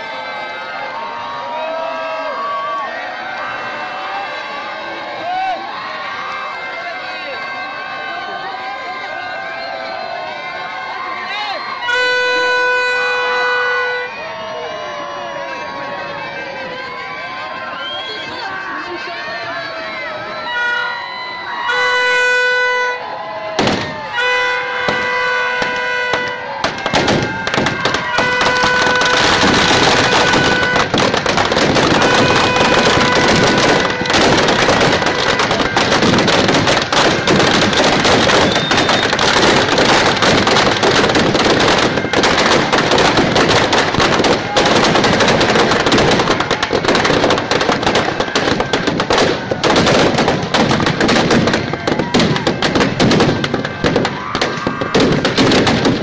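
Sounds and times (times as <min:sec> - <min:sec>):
firecrackers cracking and banging: 0:23.6 - 0:56.0.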